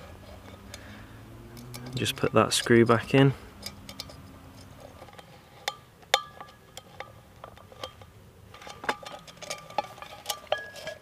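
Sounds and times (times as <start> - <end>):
metal mug ringing: 5.7 - 6.9, 8.9 - 11.0.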